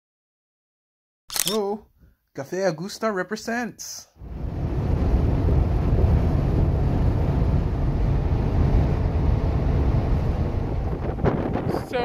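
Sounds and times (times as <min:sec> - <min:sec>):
road and wind noise in car: 0:04.5 - 0:12.0.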